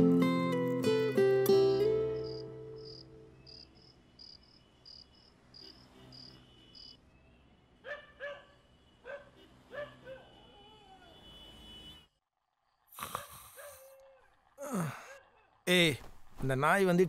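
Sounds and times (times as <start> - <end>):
acoustic guitar music: 0.0 - 3.4
crickets chirping: 2.2 - 7.0
dog barking: 7.8 - 11.2, 13.0 - 15.6.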